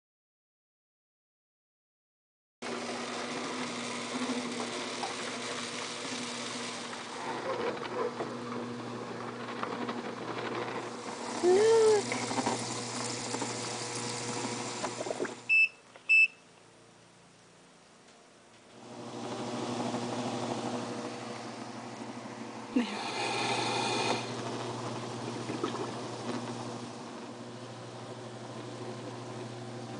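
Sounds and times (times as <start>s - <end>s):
short high electronic beeps: 15.5s - 16.4s.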